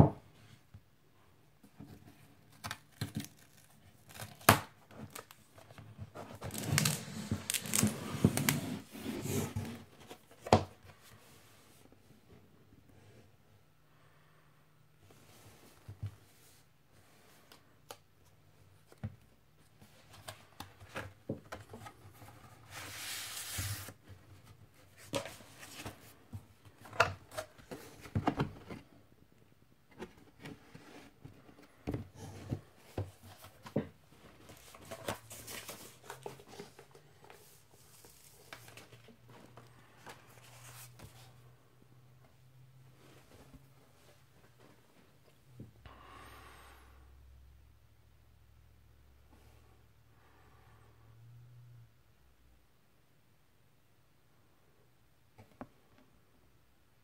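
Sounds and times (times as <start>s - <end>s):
paper sleeve rustle: 6.4s - 9.8s, 22.6s - 24.0s.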